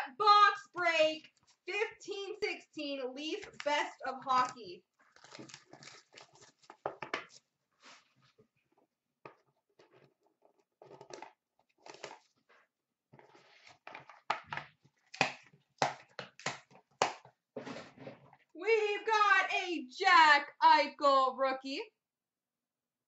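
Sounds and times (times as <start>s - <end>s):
cardboard packaging crinkling and tearing: 5.0s - 7.5s.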